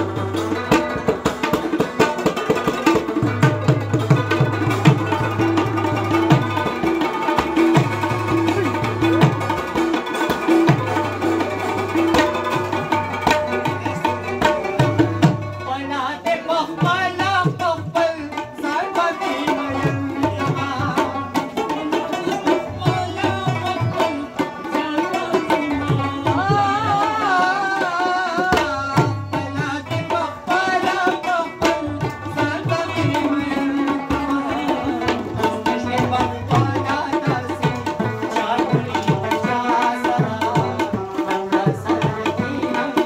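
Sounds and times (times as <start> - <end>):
tabla playing a rhythm: 0.0 - 43.0
man singing ornamented lines: 13.7 - 43.0.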